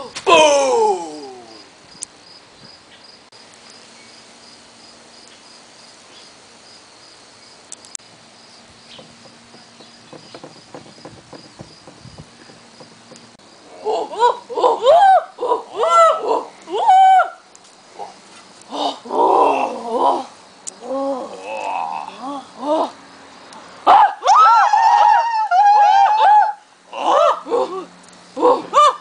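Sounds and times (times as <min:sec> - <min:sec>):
crickets chirping: 0:00.8 - 0:24.2
light taps and rustles: 0:08.8 - 0:13.4.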